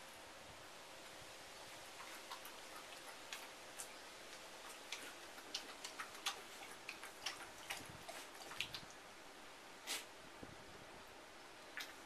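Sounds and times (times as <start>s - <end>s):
water splashes and drips: 2.0s - 9.0s, 11.7s - 12.0s.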